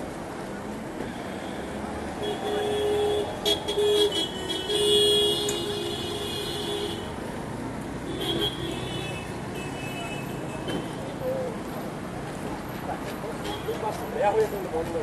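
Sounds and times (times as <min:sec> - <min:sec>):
traffic noise: 0:00.0 - 0:15.0
vehicle horns honking: 0:01.1 - 0:07.2, 0:08.1 - 0:11.0.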